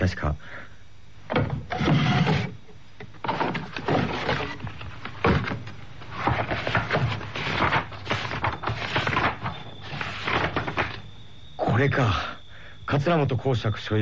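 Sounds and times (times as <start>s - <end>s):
notebook pages rustling: 3.2s - 11.2s.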